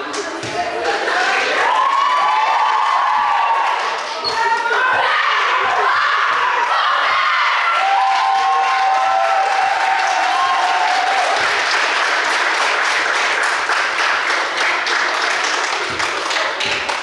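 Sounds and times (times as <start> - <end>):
people shouting and cheering: 0.0 - 11.8
crowd applauding: 1.1 - 4.7, 7.6 - 17.0.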